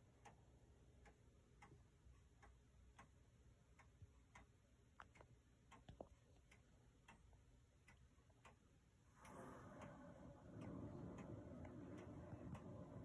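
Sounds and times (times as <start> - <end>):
wall clock ticking: 0.0 - 13.0
sharp clock clicks: 7.9 - 13.0.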